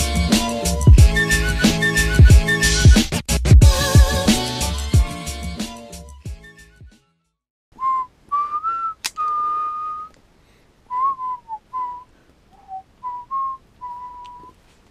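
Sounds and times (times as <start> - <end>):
person whistling a tune: 0.8 - 3.0, 7.8 - 10.2, 10.9 - 14.5
sharp click: 9.0 - 9.4.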